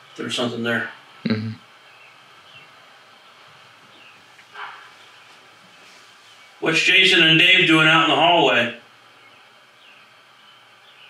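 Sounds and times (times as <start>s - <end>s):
low room hiss: 0.0s - 11.0s
man uttering syllable: 1.3s - 1.6s.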